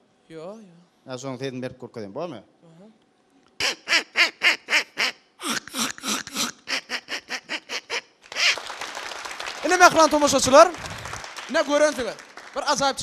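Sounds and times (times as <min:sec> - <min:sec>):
man imitating duck quacks: 0:03.6 - 0:08.6
audience applause: 0:08.2 - 0:13.0.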